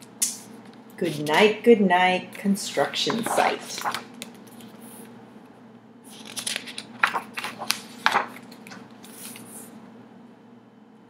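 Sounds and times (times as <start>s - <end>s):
paper rustling: 0.6s - 1.5s, 2.7s - 5.1s, 6.1s - 9.8s
pages snapping and flicking: 3.0s - 4.8s, 6.1s - 9.7s.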